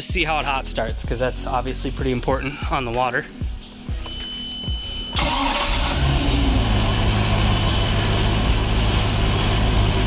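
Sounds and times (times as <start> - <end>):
boat engine starting and idling: 5.0 - 10.0.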